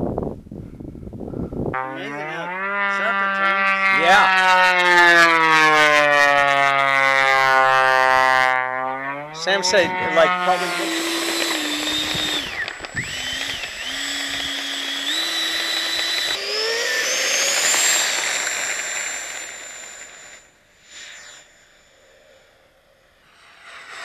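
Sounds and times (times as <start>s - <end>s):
model jet fan whining: 1.5s - 24.0s.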